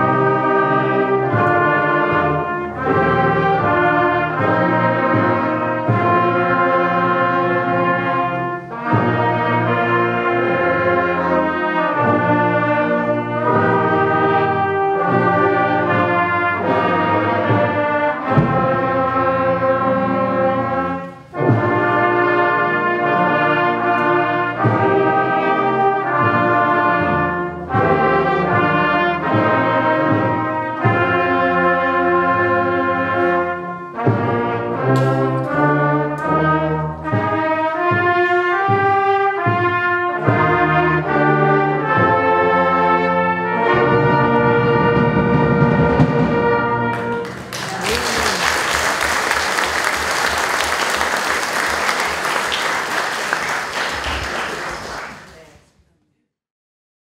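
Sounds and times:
brass band playing: 0.0 - 55.3
audience applause: 47.0 - 55.6.

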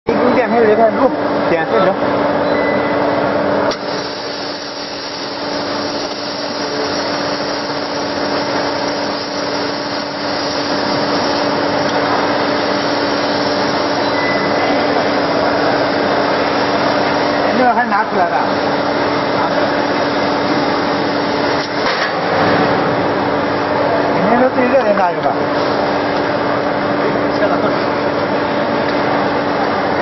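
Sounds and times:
laser cutting machine hiss: 3.7 - 21.9.

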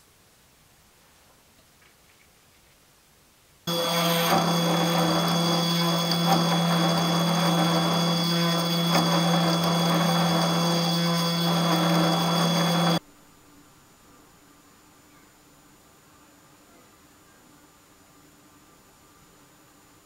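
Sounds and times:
milling machine cutting metal whine: 3.7 - 13.0.

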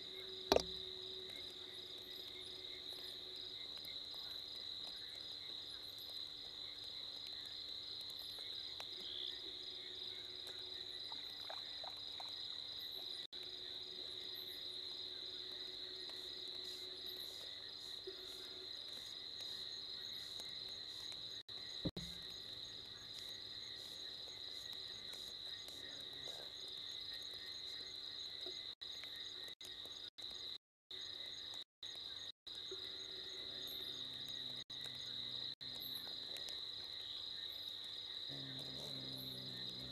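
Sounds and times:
crickets trilling: 0.0 - 39.9
sharp knock: 0.5 - 0.8.

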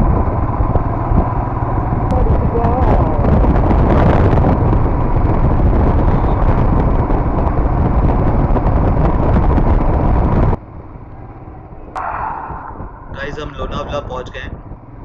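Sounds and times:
motorcycle engine running: 0.0 - 11.9
wind rushing over microphone: 0.0 - 15.0.

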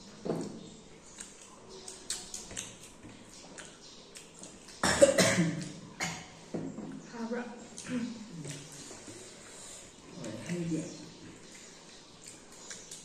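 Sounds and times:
mouth clicks of people eating: 0.0 - 13.0
person coughing: 4.8 - 6.3.

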